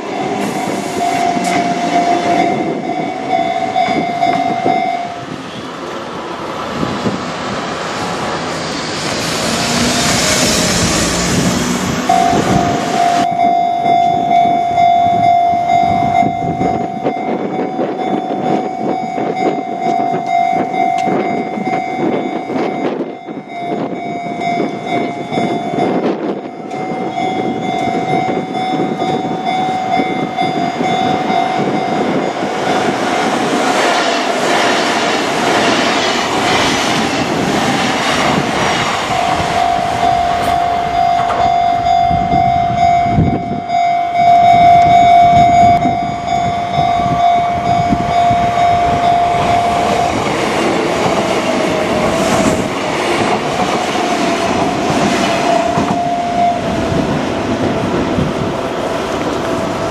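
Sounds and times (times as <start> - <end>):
level crossing alarm bell: 0.0 - 5.4, 12.1 - 33.0, 39.1 - 50.6, 54.8 - 57.3.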